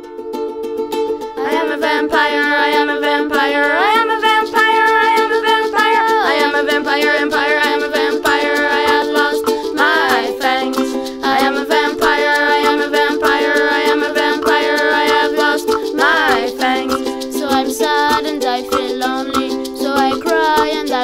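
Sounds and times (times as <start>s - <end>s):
plucked string accompaniment: 0.0s - 21.0s.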